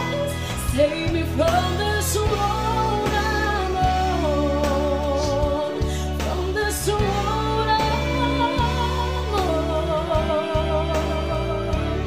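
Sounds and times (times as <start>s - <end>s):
instrumental accompaniment: 0.0s - 12.0s
woman singing a slow ballad: 0.0s - 12.0s.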